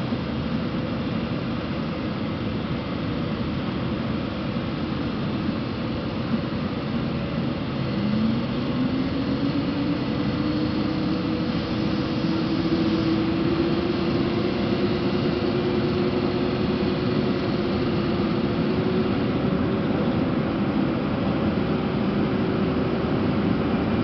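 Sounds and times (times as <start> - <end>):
locomotive hum and rumble: 0.0 - 24.0
traction drive whine: 6.7 - 24.0.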